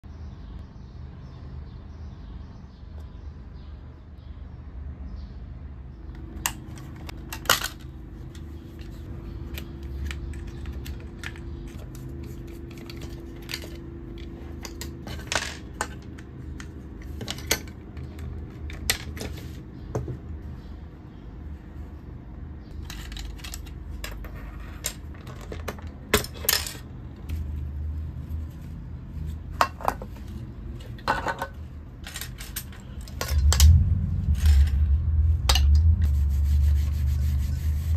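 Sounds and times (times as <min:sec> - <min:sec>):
plastic parts clicking and tapping: 0:06.2 - 0:20.2, 0:22.8 - 0:26.9
steady low hum: 0:31.7 - 0:37.9.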